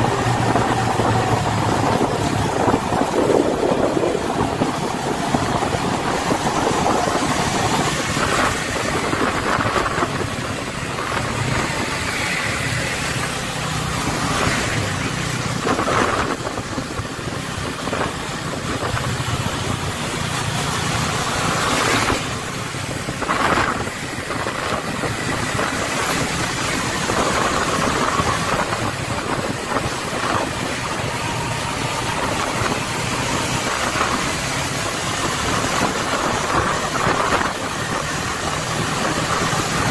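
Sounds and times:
vehicle engines running: 0.0s - 39.9s
wind and tyre noise: 0.0s - 39.9s.

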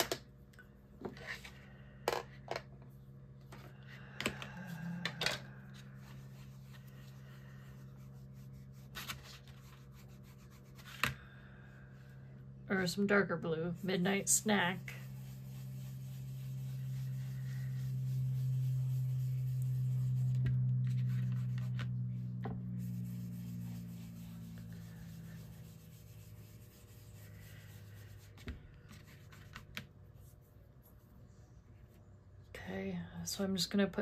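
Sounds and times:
low steady hum: 0.0s - 34.0s
ink rubbed onto paper: 13.8s - 21.8s.

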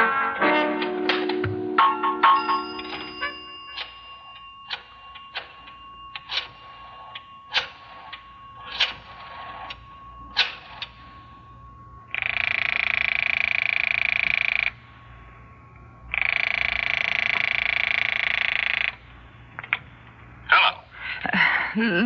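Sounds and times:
telephone bell ringing: 1.8s - 15.3s, 16.1s - 19.0s.

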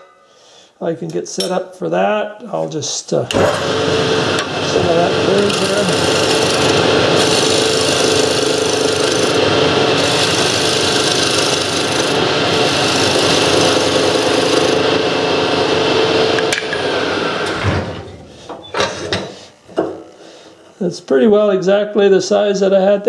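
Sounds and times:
wood lathe humming: 3.3s - 17.6s
chisel scraping spinning wood: 4.3s - 15.0s.

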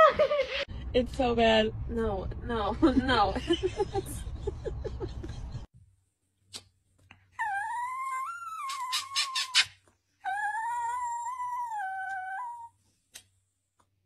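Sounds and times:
dog howling: 10.3s - 12.7s.

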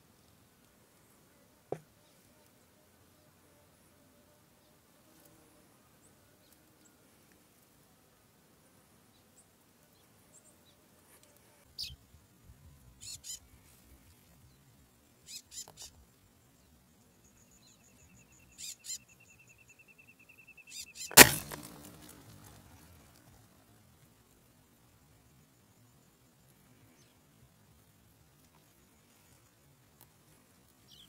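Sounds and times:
high steady bird trill: 15.2s - 16.0s, 17.2s - 22.0s
high bird chirps: 17.7s - 21.2s
rifle shot: 21.1s - 22.0s.

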